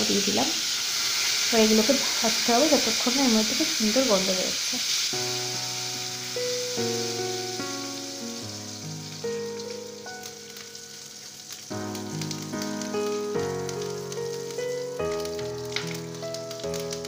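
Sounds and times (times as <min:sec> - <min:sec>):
spices sizzling in hot oil: 0:00.0 - 0:17.0
background music: 0:05.2 - 0:17.0.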